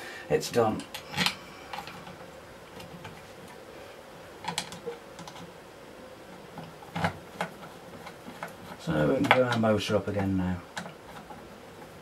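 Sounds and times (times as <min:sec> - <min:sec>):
faint steady hum: 0:00.0 - 0:12.0
plastic parts clicking and tapping: 0:04.4 - 0:05.5, 0:10.7 - 0:11.4.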